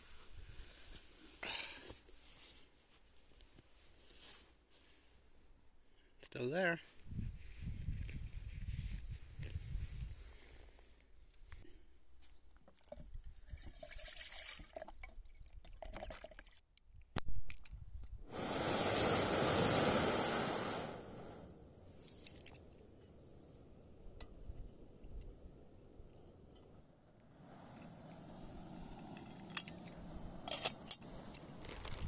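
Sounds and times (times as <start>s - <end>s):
gas burner hissing: 18.3s - 32.0s.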